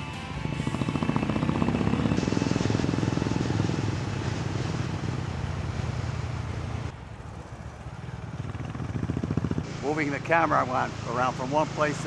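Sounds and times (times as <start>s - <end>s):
motorcycle engine running: 0.0s - 12.0s
wind noise on microphone: 0.4s - 5.2s.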